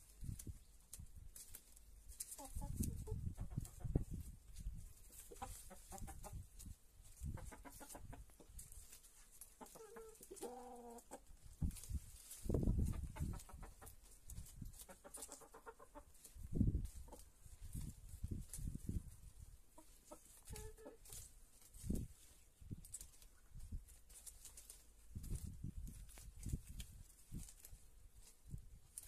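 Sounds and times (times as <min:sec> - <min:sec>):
hens clucking: 0:02.2 - 0:22.4.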